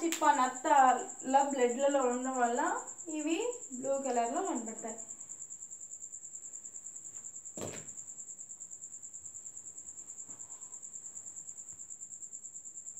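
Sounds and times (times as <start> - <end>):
cricket chirping: 0.0 - 12.9
knock: 7.6 - 7.9.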